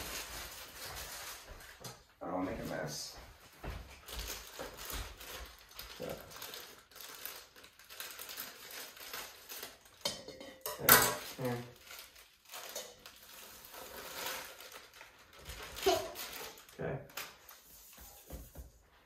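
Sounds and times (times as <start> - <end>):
plastic bag crinkling: 0.0 - 1.8, 4.0 - 10.1, 11.2 - 18.2
scissors cutting plastic bag: 4.1 - 10.1, 11.2 - 17.6.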